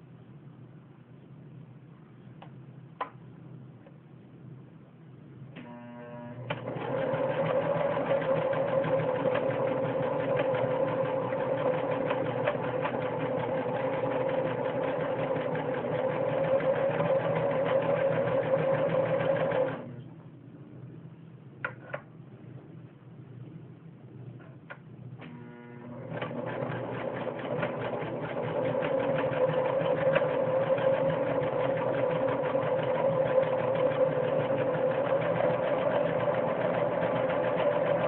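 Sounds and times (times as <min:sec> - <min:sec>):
sewing machine stitching: 0:06.5 - 0:19.9, 0:25.2 - 0:38.0.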